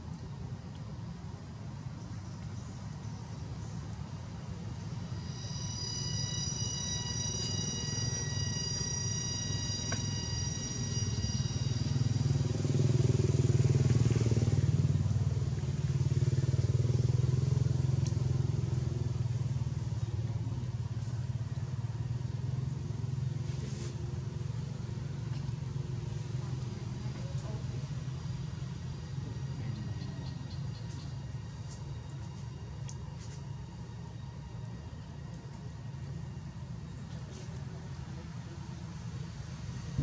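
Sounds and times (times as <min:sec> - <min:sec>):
high-pitched whine: 0:03.4 - 0:26.4, 0:28.0 - 0:40.0
vehicle engine passing: 0:04.7 - 0:31.4.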